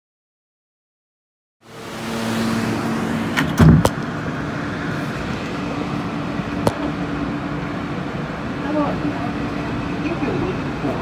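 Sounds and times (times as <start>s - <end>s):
train humming: 1.6s - 11.0s
loud clunks: 3.3s - 4.0s.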